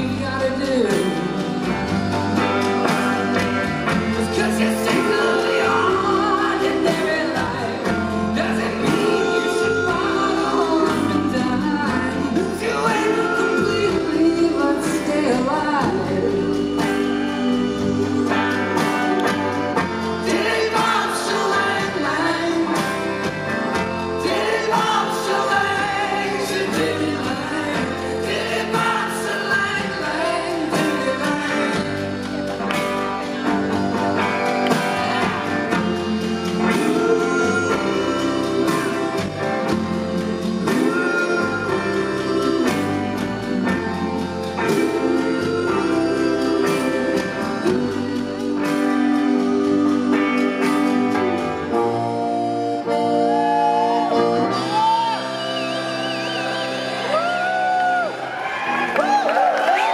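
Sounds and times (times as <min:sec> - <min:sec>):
man singing: 0:00.0 - 0:23.2, 0:24.0 - 0:32.4, 0:35.0 - 0:51.1
live rock band playing: 0:00.0 - 0:59.9.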